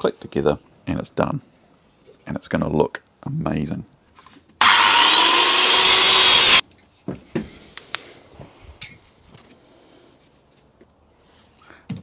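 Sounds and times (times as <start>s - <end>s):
circular saw cutting wood: 4.6s - 6.6s.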